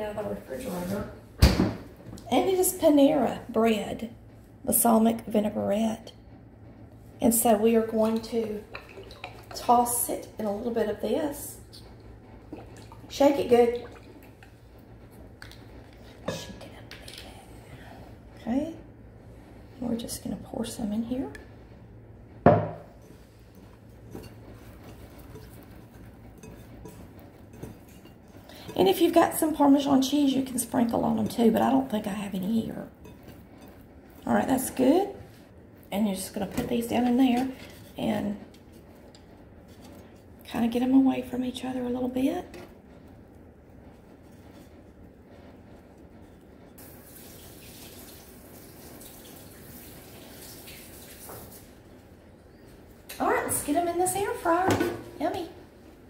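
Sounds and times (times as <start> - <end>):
steady low hum: 0.0 - 47.0
bread rustling in glass bowl: 22.9 - 35.4
faucet running water into sink: 46.8 - 51.7.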